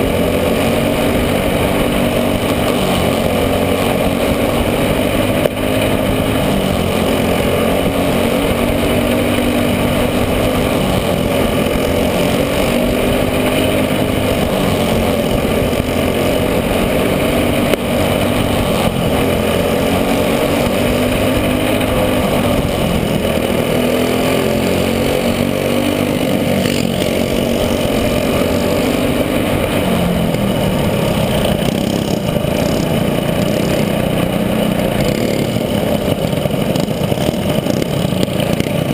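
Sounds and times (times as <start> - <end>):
racing kart engine revving: 0.0 - 38.9.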